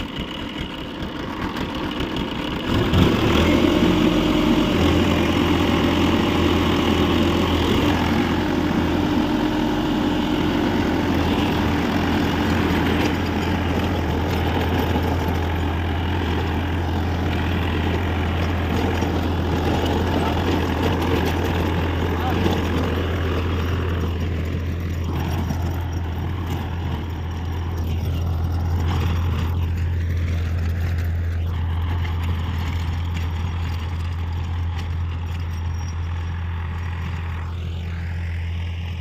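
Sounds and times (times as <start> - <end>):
tractor diesel engine chugging: 0.0 - 39.0.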